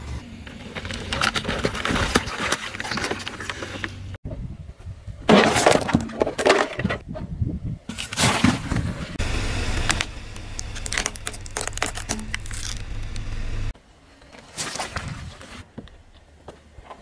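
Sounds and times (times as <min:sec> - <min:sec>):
drink carton crinkling and crunching: 0:00.7 - 0:03.9, 0:09.7 - 0:13.7
low engine hum: 0:09.2 - 0:13.7
plastic cracking and snapping: 0:09.9 - 0:13.4.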